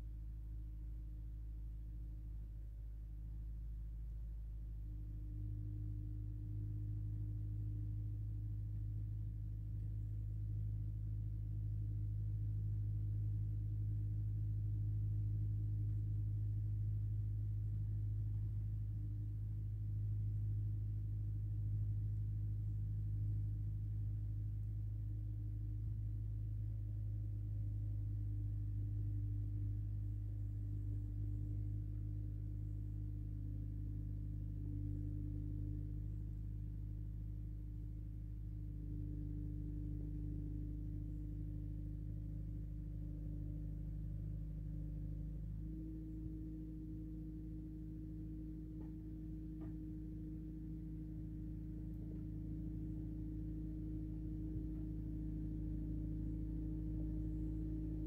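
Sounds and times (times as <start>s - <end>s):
faint steady tones: 0.0s - 58.0s
low hum: 0.0s - 58.0s.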